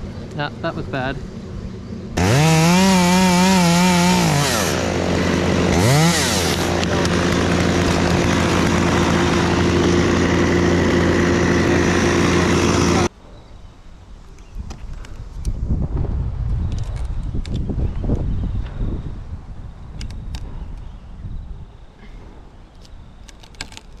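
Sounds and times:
chainsaw revving and cutting: 2.2s - 13.1s.

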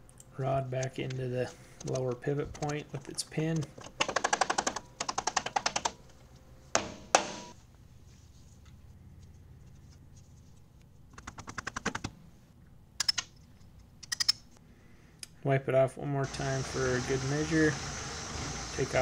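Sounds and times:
sharp metallic knocks ringing: 6.8s - 7.6s.

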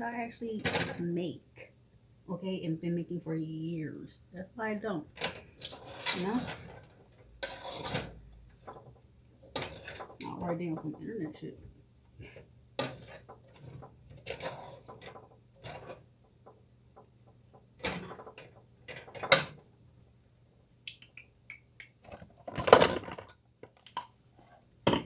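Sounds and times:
utensils and dishes clattering: 5.2s - 8.9s, 9.6s - 11.5s.

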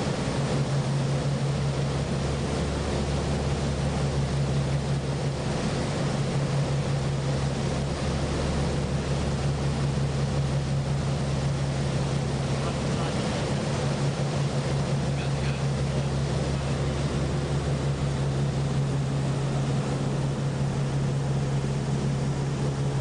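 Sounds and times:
motorboat engine droning: 0.0s - 23.0s
water rushing: 0.0s - 23.0s
wind: 0.0s - 23.0s.

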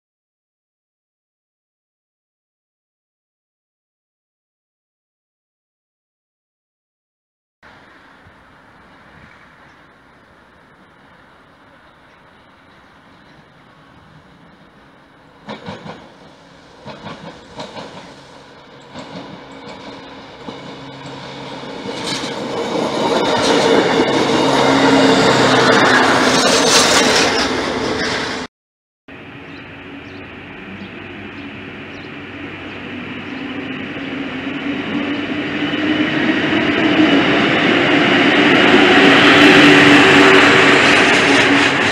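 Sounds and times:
train wheel clatter: 11.6s - 28.3s, 38.8s - 41.9s
diesel engine hum: 29.1s - 41.9s.

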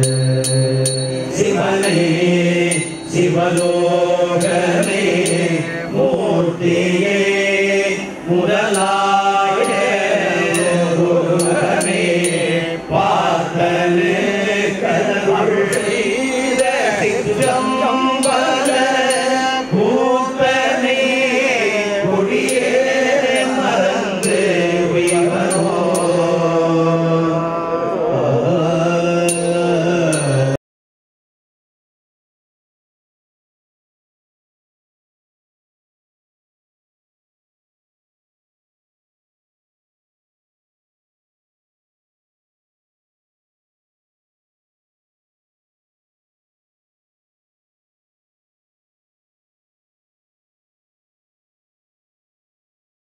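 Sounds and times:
priests chanting together: 0.0s - 30.6s.

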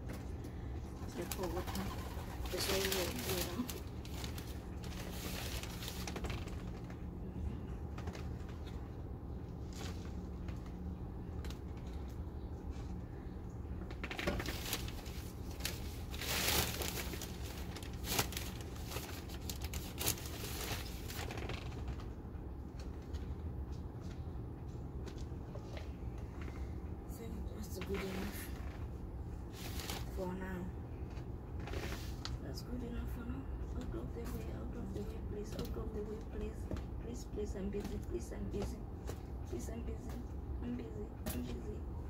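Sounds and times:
steady low hum: 0.0s - 42.0s
rustling plastic pots and soil: 2.5s - 6.8s, 14.0s - 21.9s, 29.5s - 30.3s.

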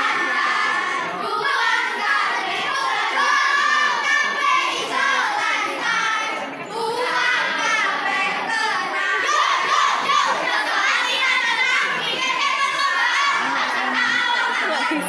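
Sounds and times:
children chanting group cheer: 0.0s - 15.0s.

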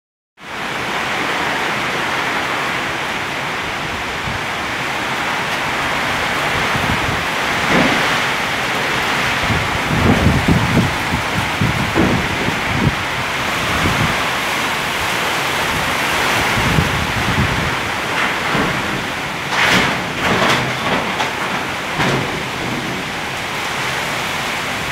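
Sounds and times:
heavy rain and wind: 0.4s - 24.9s
low buffeting bursts: 3.7s - 24.9s.

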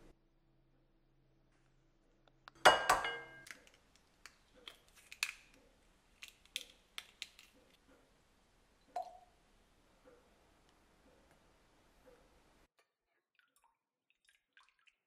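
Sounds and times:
egg clinking on glass bowl: 2.6s - 3.7s
eggshell crackling: 3.4s - 8.3s.

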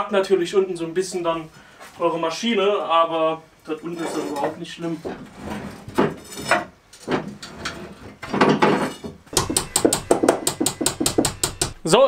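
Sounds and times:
rapid sharp clicks: 9.4s - 11.9s.

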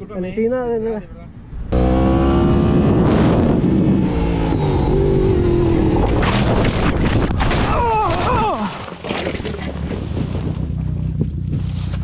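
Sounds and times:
motorcycle engine: 1.6s - 7.2s.

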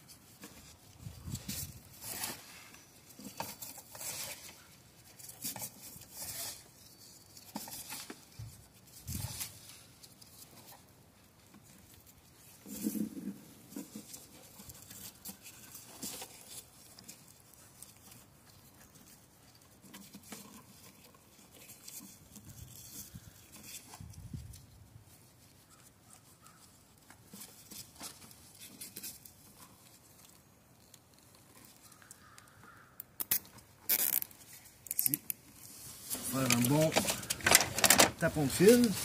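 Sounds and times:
rustling and scraping of wires: 0.0s - 39.0s.

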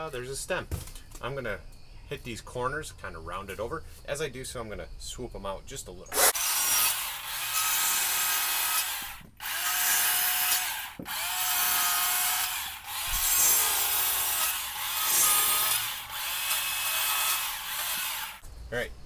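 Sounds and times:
chainsaw cutting log: 6.1s - 18.4s.

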